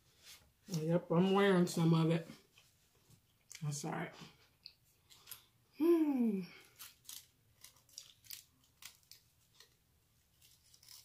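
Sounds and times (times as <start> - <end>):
wet chewing: 6.7 - 9.8.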